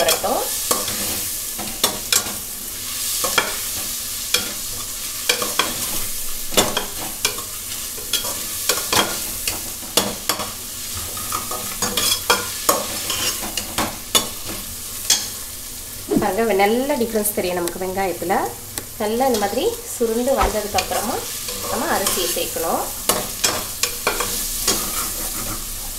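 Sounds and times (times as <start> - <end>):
vegetables sizzling in oil: 0.0 - 25.9
steel spoon scraping a pan: 11.2 - 14.3, 23.1 - 25.9.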